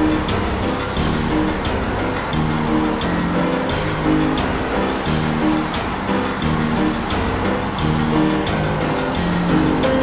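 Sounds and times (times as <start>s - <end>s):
background music with steady beat: 0.0s - 10.0s
motorway traffic noise: 0.0s - 10.0s.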